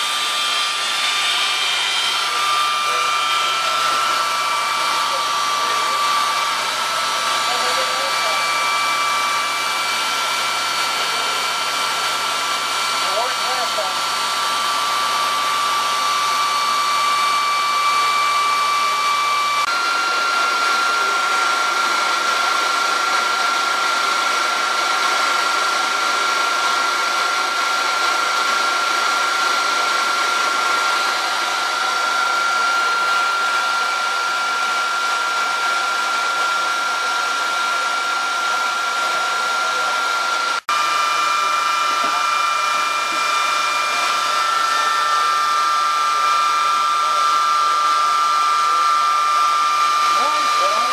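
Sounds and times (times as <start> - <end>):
high whining tones: 0.0 - 21.7
helicopter fans whirring: 50.1 - 50.9.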